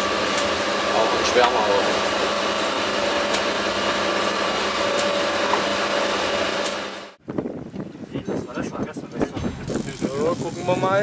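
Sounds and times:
boat engine droning: 0.0s - 7.2s.

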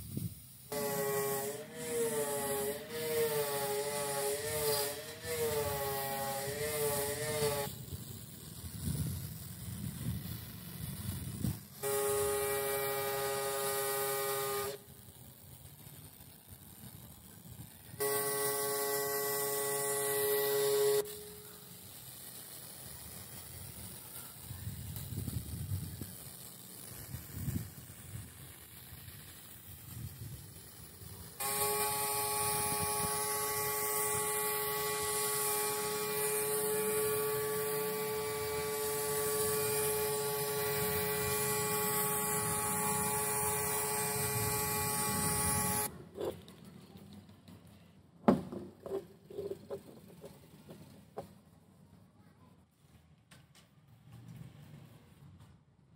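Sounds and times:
water jet hissing: 0.0s - 14.9s, 18.0s - 45.9s
pressure washer motor whine: 0.7s - 7.8s, 11.4s - 14.9s, 18.0s - 21.8s, 31.3s - 45.9s.

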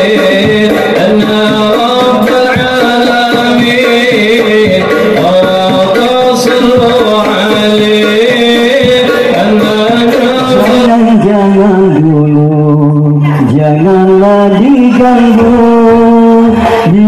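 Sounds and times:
frame drums beating: 0.0s - 12.0s
person singing: 0.0s - 17.0s.

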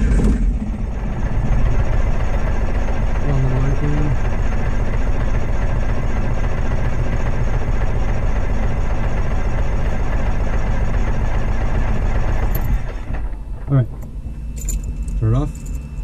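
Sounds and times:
aircraft engine starter cranking: 12.4s - 16.0s.

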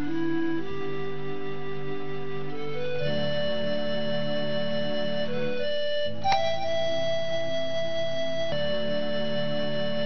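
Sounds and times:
slow melody of held notes: 0.0s - 10.0s.

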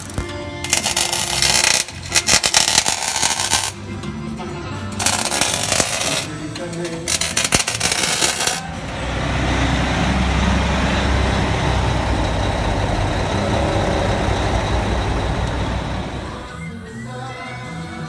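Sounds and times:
arc welding crackle: 0.0s - 3.8s, 5.0s - 8.6s
diesel truck engine running: 3.8s - 16.6s.

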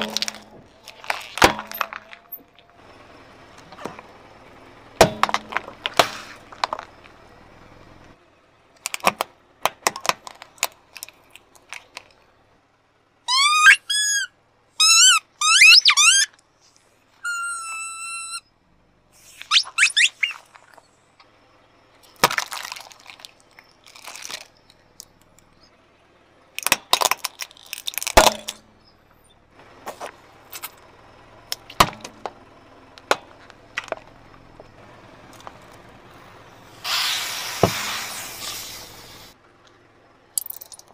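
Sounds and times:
squeaky rubber toys squealing: 13.3s - 16.4s, 17.2s - 18.4s, 19.4s - 20.8s.

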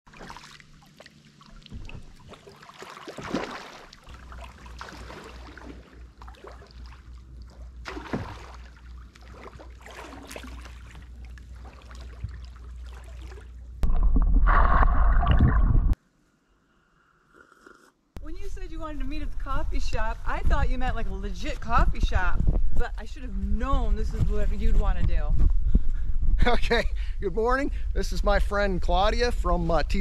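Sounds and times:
paddles splashing: 0.1s - 15.6s
muffled underwater rush: 3.2s - 16.0s.

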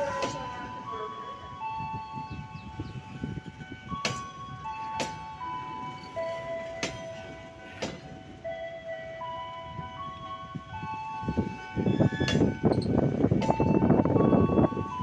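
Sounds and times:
chime-like melody: 0.0s - 15.0s
train wheels clacking over rail joints: 6.6s - 8.2s.

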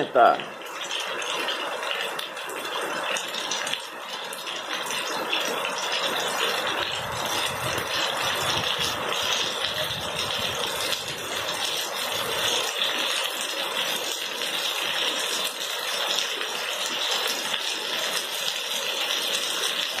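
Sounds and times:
heavy rain on wet pavement: 0.0s - 20.0s.

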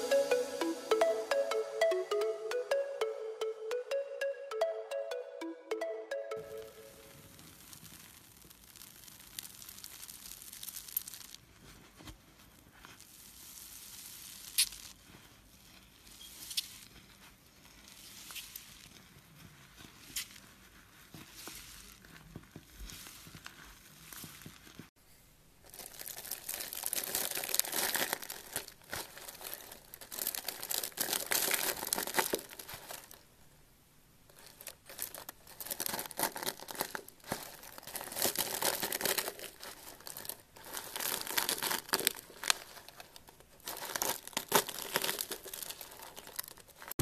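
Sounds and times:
shavings crushed with wooden pestle: 7.5s - 11.5s.

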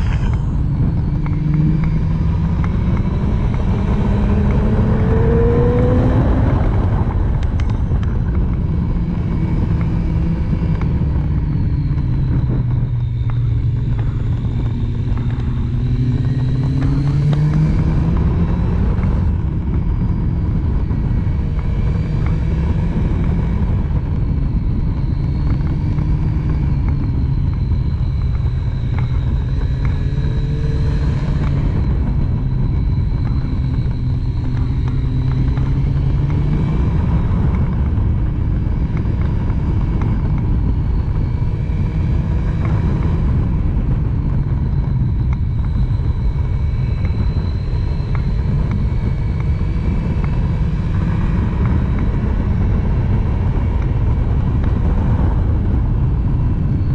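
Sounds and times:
motorcycle engine running at speed: 0.0s - 56.9s
wind rush on microphone: 0.0s - 56.9s.

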